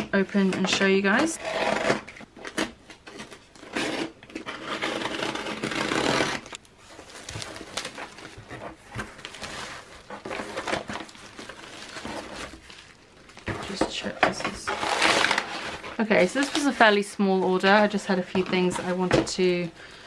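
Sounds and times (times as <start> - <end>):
packing tape ripping: 1.9 - 8.3
packing paper rustling: 2.4 - 20.0
plastic wrap crinkling: 4.5 - 20.0.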